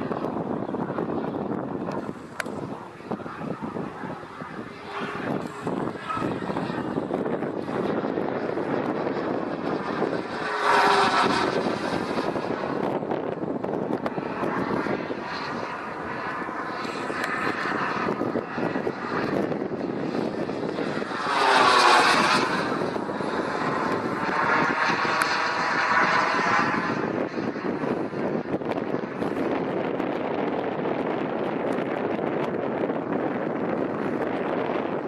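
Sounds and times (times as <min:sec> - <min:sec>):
model jet turbine rush: 0:00.0 - 0:35.0.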